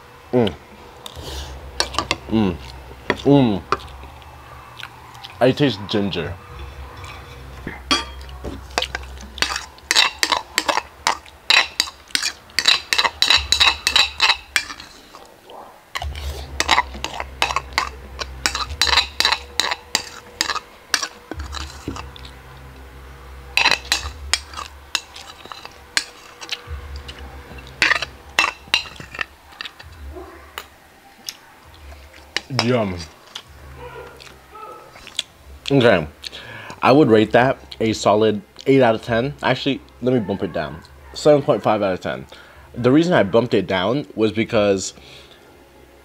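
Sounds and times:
metal spoon clinking on ceramic bowl: 7.7s - 14.9s, 16.0s - 22.3s, 23.6s - 29.9s.

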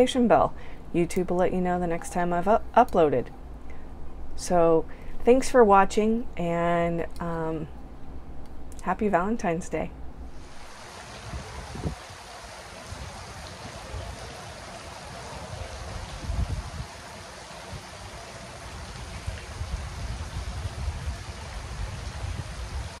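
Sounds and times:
fountain jet splashing into water: 10.6s - 23.0s.

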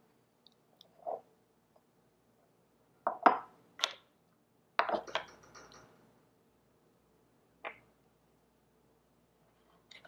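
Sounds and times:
knocks and clinks of kitchenware: 4.8s - 5.9s.

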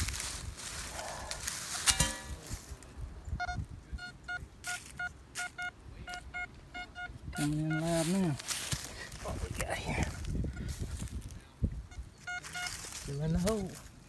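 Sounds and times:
metal detector short beeps: 3.4s - 8.2s, 11.9s - 12.8s.

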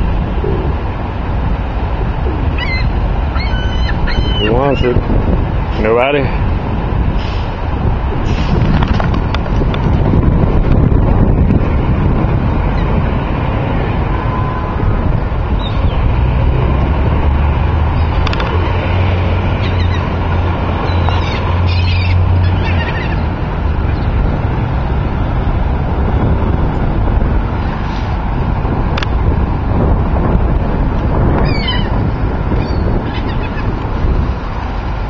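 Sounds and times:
low engine drone: 0.0s - 35.0s
wind: 0.0s - 35.0s
bird calls: 2.6s - 5.0s, 19.6s - 20.1s, 20.8s - 23.3s, 31.4s - 32.0s.

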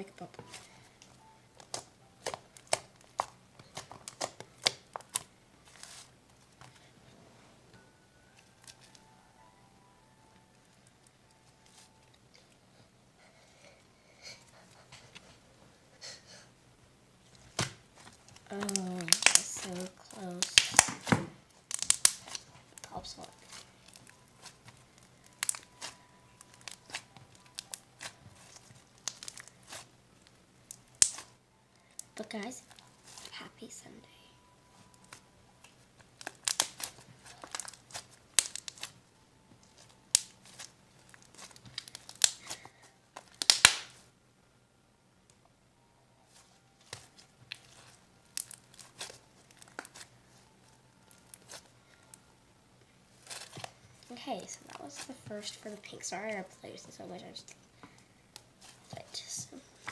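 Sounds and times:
slime crackling and popping: 0.1s - 6.1s, 8.6s - 9.1s, 17.4s - 33.4s, 34.8s - 39.0s, 39.6s - 44.0s, 46.8s - 52.2s, 53.1s - 56.4s.

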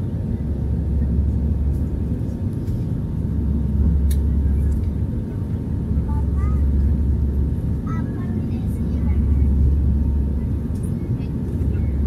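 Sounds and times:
aircraft cabin engine rumble: 0.0s - 12.0s
faint click: 4.0s - 4.2s.

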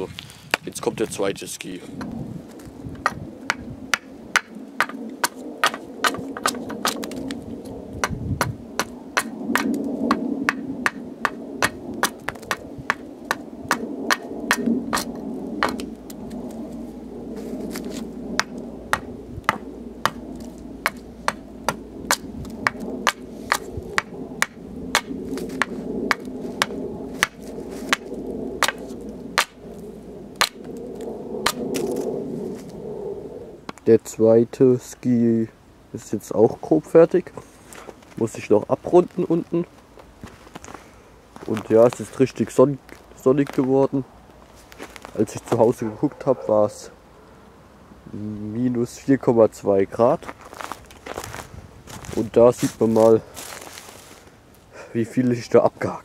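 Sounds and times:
hatchet chopping wood: 3.0s - 7.3s, 8.0s - 15.9s, 20.9s - 28.8s, 29.4s - 29.6s.

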